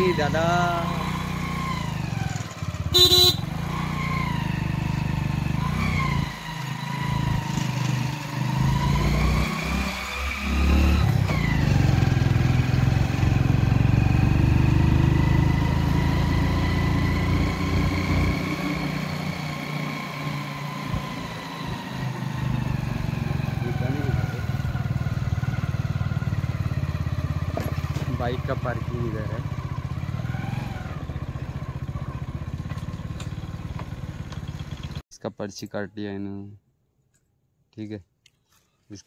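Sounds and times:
motorcycle engine running: 0.0s - 9.5s, 10.7s - 35.0s
short horn beep: 2.9s - 3.5s.

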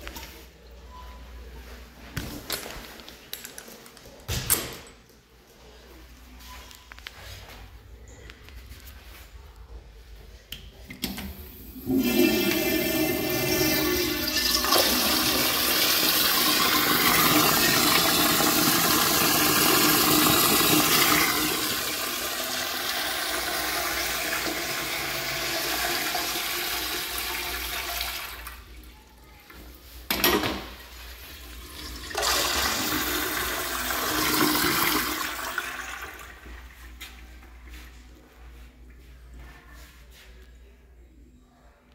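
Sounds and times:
toilet flushing: 10.9s - 28.9s, 30.0s - 36.9s.

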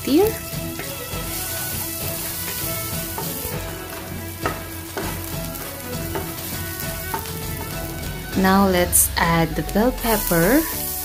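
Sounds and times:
aromatics sizzling in hot oil: 0.0s - 11.0s
wooden spatula scraping a wok: 0.6s - 8.4s.

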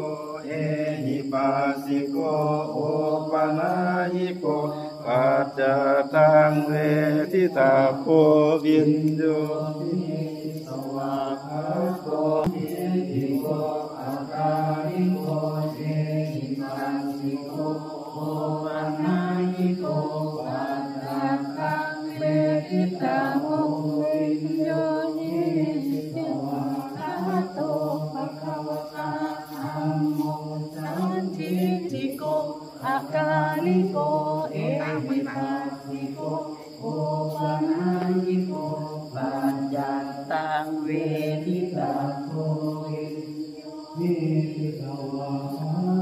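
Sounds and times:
group chanting: 0.0s - 46.0s.

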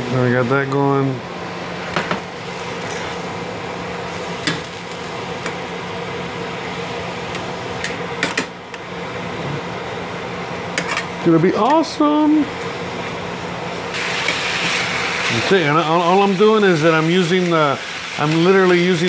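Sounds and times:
meat juices sizzling in a pan: 1.6s - 6.1s, 13.8s - 19.0s.

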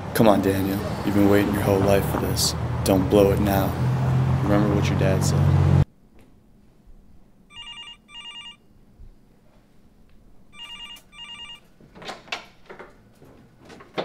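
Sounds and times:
electronic telephone ringing: 7.5s - 8.7s, 10.5s - 11.7s.

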